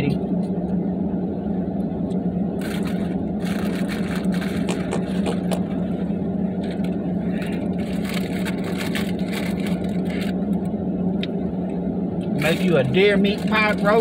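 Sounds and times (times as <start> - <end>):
truck engine humming: 0.0 - 14.0
food wrappers rustling: 2.6 - 5.5, 6.6 - 10.4.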